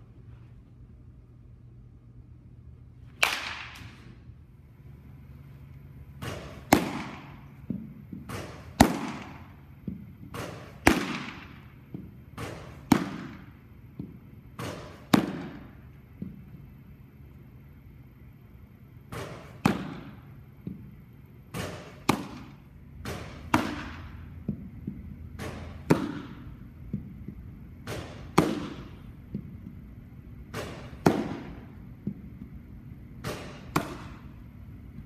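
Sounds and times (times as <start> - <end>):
baseball popping into mitt: 6.2 - 16.4, 21.5 - 29.8, 30.5 - 32.6, 33.2 - 34.3.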